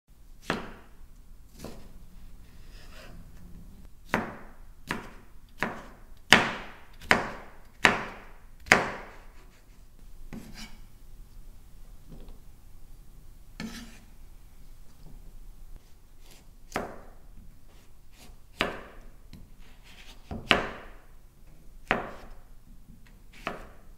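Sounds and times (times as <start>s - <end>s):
knife chopping on wooden board: 0.4s - 0.9s, 1.5s - 1.9s, 4.1s - 9.5s, 10.3s - 10.8s, 16.2s - 17.1s, 18.2s - 21.0s, 21.8s - 22.3s, 23.3s - 23.8s.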